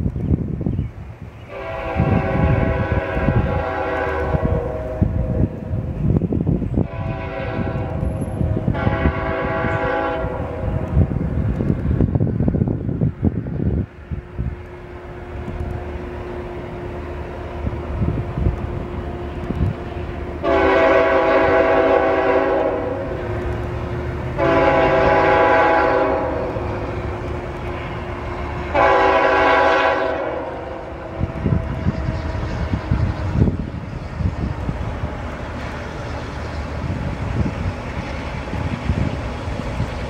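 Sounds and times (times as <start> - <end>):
locomotive horn blasts: 1.5 - 5.8, 6.8 - 10.9, 20.0 - 23.3, 24.4 - 27.1, 27.8 - 33.1.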